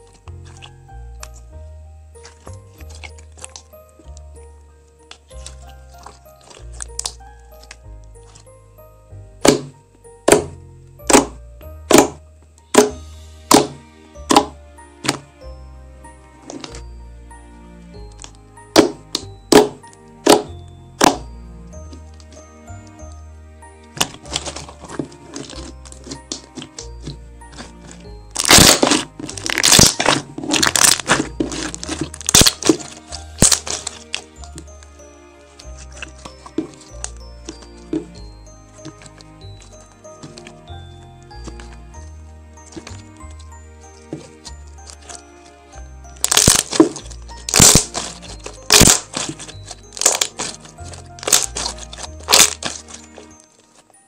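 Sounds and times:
background music: 0.0 - 54.0
slime crackling and popping: 2.2 - 4.3, 5.0 - 8.6, 9.4 - 15.2, 18.1 - 21.3, 23.9 - 34.8, 42.6 - 45.4, 46.0 - 53.9.

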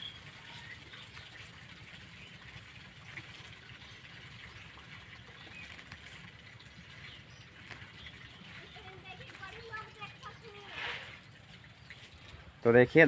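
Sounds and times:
plants rustling being picked: 7.6 - 9.7.

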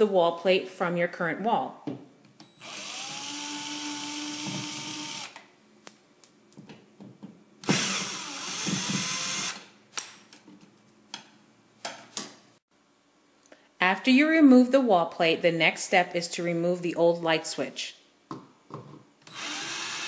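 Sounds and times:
cordless drill spinning: 2.6 - 5.4, 7.6 - 9.7, 19.2 - 20.0.

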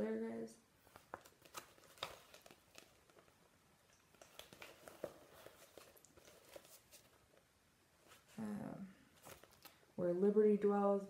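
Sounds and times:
paper rustling: 0.8 - 8.4, 9.1 - 9.8.

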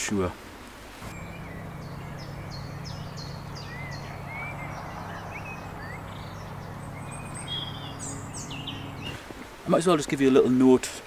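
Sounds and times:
small birds chirping: 1.0 - 9.8.

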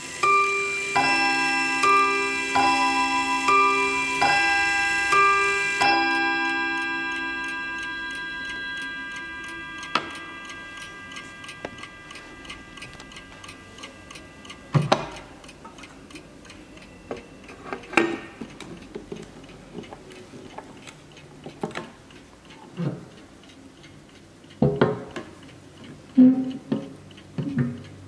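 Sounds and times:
clock chime on gong rods: 0.0 - 18.4
clock ticking: 0.0 - 28.0.

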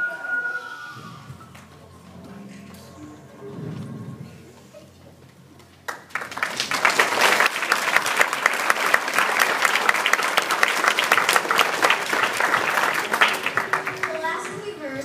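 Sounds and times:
audience applauding: 5.8 - 14.7.

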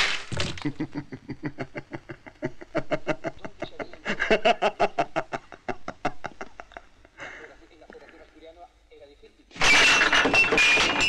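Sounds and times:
young man laughing hard: 0.5 - 7.4.

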